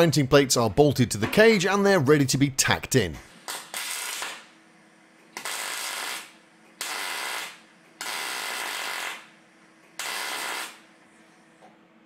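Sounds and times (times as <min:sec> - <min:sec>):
welder arc crackle: 0:03.3 - 0:04.6, 0:05.3 - 0:09.4, 0:10.0 - 0:10.8.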